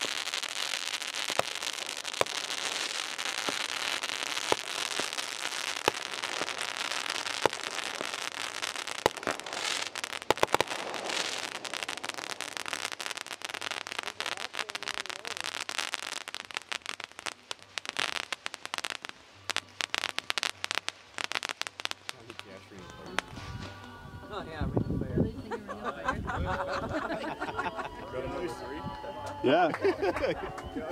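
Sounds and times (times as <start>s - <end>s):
fireworks popping: 0.0s - 24.0s
fireworks crackling: 0.0s - 24.8s.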